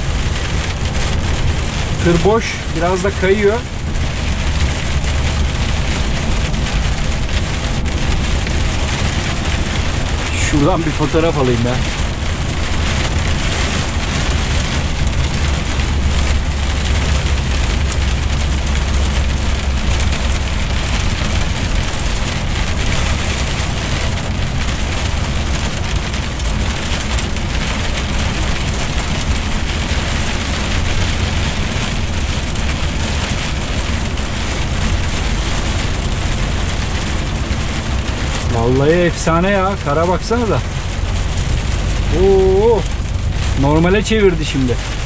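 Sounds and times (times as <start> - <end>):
sleet and hail hitting windscreen: 0.0 - 45.0
truck engine drone: 0.0 - 45.0
tyres on slushy road: 0.0 - 45.0.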